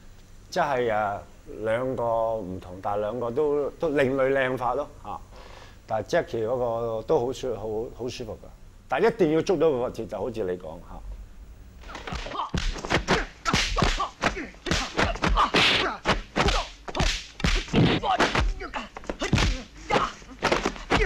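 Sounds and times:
fighters shouting and grunting: 11.9 - 21.0
punch and kick impacts: 11.9 - 21.0.

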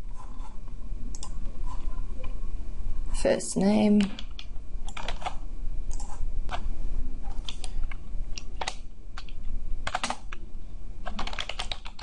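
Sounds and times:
steady low hum: 0.0 - 12.0
keyboard and mouse clicks: 1.1 - 1.4, 4.0 - 6.6, 7.3 - 10.4.

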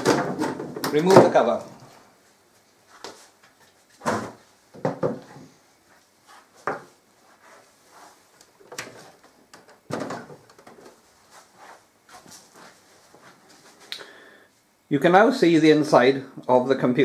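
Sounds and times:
knocks and clunks on table: 4.0 - 5.5.

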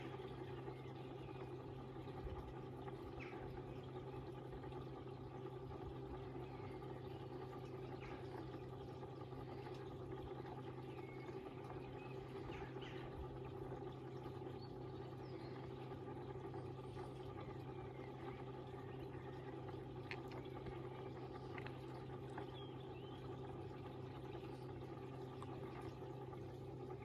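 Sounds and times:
pond pump humming: 0.0 - 27.0
faint bird chirps: 6.1 - 26.2.

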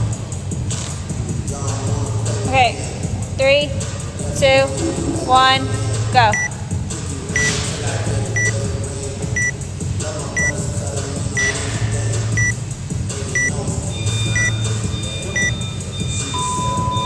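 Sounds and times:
longer lower timer beep: 8.4 - 8.6, 13.4 - 17.0
short high timer beeps: 14.2 - 14.6, 15.3 - 17.0.

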